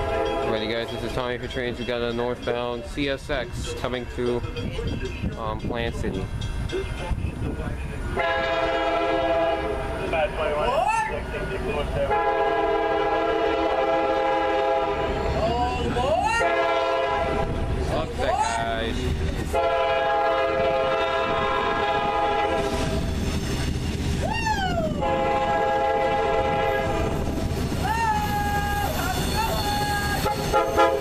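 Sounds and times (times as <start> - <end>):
locomotive air horn blasts: 0.0 - 0.5, 8.2 - 9.9, 12.1 - 15.2, 16.4 - 17.7, 19.5 - 23.0, 25.0 - 27.3, 29.5 - 31.0.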